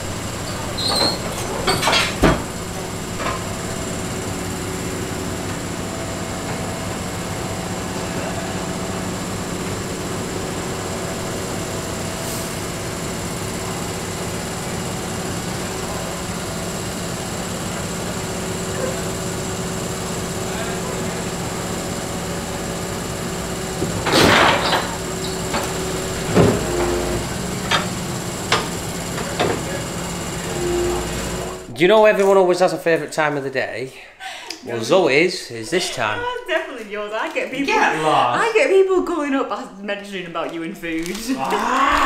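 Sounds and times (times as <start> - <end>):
diesel engine running: 0.0 - 32.1
loud metal clanks: 0.3 - 4.2, 23.7 - 31.6.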